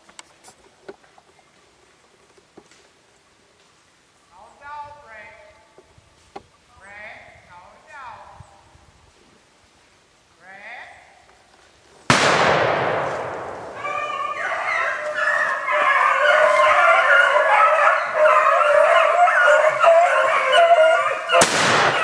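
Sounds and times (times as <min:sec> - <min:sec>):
gunshot: 0:12.1 - 0:13.8, 0:21.4 - 0:22.0
hounds baying: 0:13.6 - 0:22.0.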